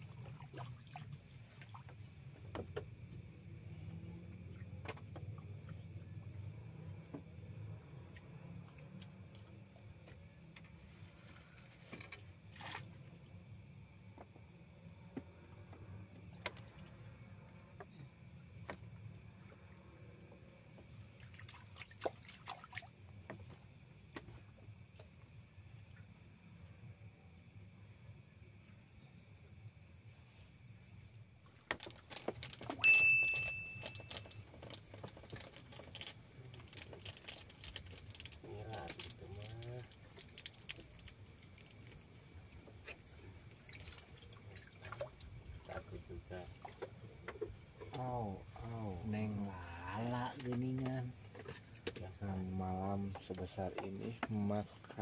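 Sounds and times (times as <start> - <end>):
insect chirring: 0.0 - 55.0
high bell-like ting: 32.8 - 34.1.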